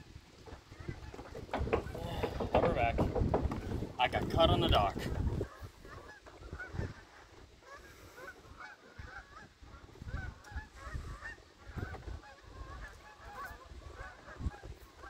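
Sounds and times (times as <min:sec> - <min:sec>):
flock of birds calling: 0:00.5 - 0:15.0
low rumbling thumps: 0:00.8 - 0:05.5.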